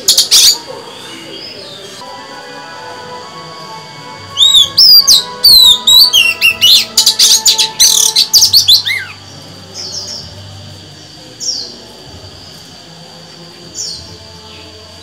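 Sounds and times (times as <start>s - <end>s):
bird singing whistles and chatter: 0.0s - 2.0s, 4.3s - 10.4s.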